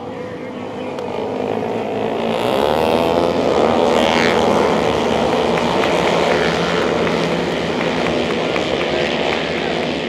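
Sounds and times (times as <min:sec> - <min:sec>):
motorcycle engines revving high: 0:00.0 - 0:10.0
motorcycle passing by: 0:00.0 - 0:10.0.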